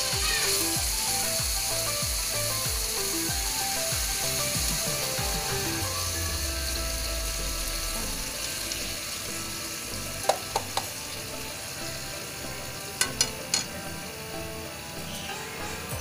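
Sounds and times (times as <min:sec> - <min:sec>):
meat sizzling in oil: 0:00.0 - 0:16.0
metal utensil knocking on can: 0:10.2 - 0:10.9.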